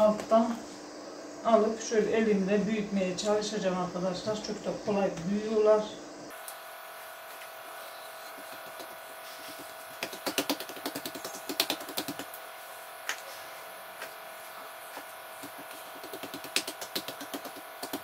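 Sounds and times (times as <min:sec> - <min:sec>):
steady background hum: 0:00.0 - 0:18.0
hands slapping dough: 0:08.4 - 0:12.3, 0:14.9 - 0:18.0.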